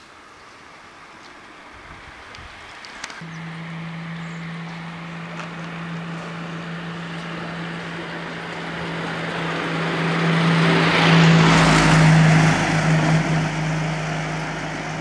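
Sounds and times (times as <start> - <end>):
car driving past: 3.2 - 15.0.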